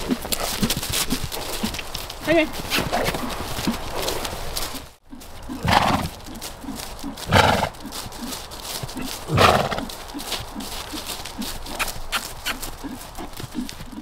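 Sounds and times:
horse snorting: 0.0 - 14.0
soft hoofbeats: 0.0 - 14.0.

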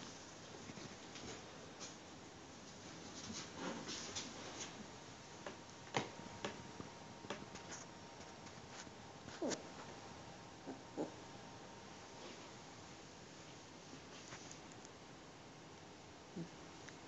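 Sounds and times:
faint rustling: 11.9 - 14.9.

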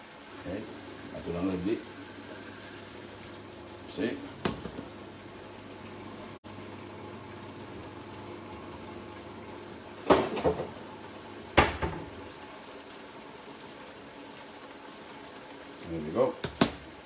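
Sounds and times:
water boiling in pot: 0.0 - 17.0
kitchenware clattering: 10.1 - 10.8.

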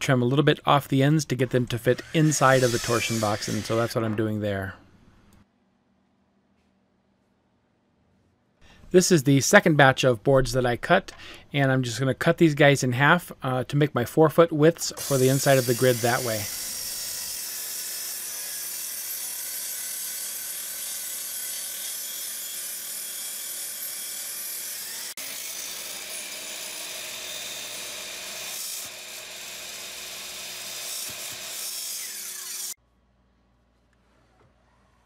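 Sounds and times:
table saw cutting plywood: 1.4 - 4.2, 14.9 - 32.8.

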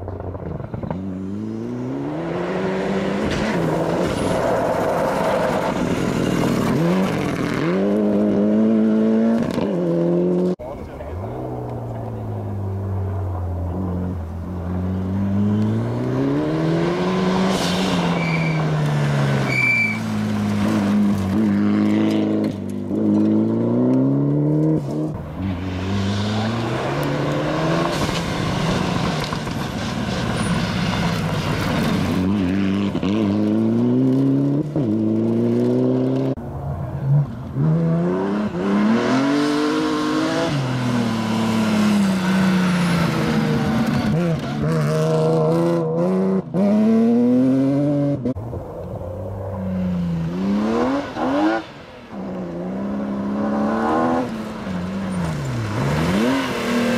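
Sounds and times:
rally car engine revving: 0.1 - 56.9
tyres on gravel: 15.4 - 37.6.

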